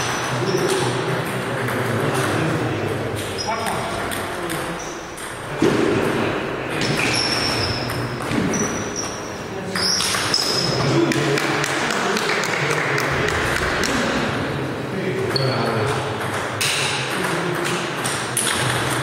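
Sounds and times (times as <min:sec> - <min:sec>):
short high squeaks: 0:07.0 - 0:10.7
table tennis balls clicking: 0:15.9 - 0:19.0.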